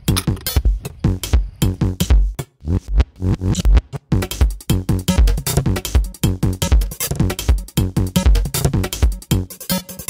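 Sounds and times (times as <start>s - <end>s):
electronic music with drum-machine beat: 0.0s - 10.0s.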